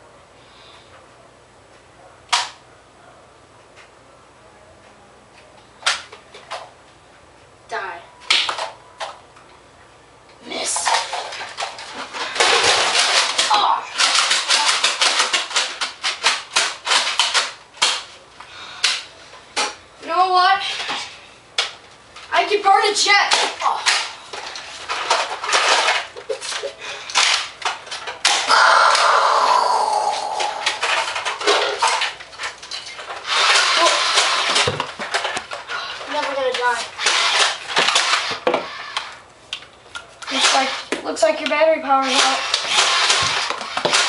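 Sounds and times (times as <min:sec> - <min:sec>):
toy blaster firing foam darts: 0:12.3 - 0:18.1, 0:28.2 - 0:29.4, 0:33.2 - 0:35.3, 0:36.1 - 0:39.1, 0:40.2 - 0:41.1, 0:41.9 - 0:44.0
foam-dart blaster motor whir: 0:28.2 - 0:31.2, 0:33.2 - 0:35.2, 0:37.0 - 0:39.1, 0:40.2 - 0:41.0, 0:42.0 - 0:44.0.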